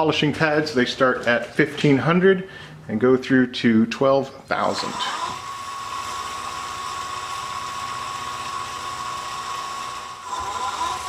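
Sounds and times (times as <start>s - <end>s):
lathe whining: 4.7s - 11.0s.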